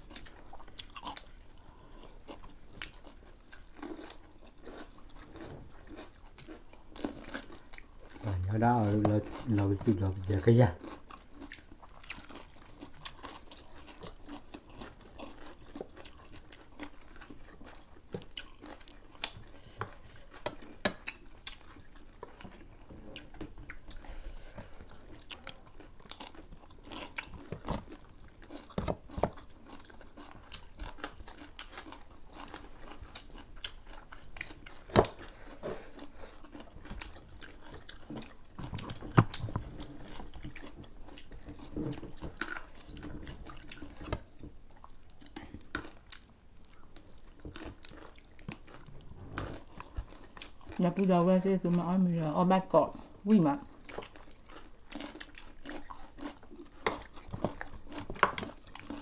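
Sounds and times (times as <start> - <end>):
chewing and crunching food: 0.0 - 59.0.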